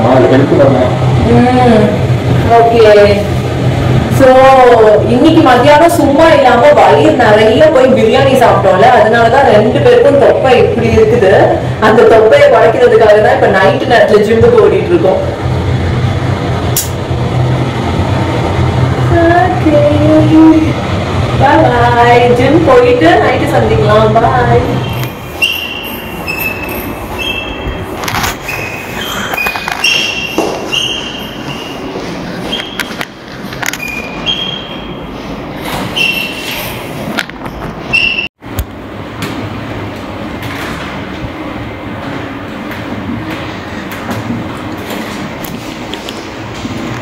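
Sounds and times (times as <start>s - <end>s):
lift car low rumble: 0.0s - 47.0s
short high squeaks: 24.8s - 33.0s, 33.7s - 38.3s.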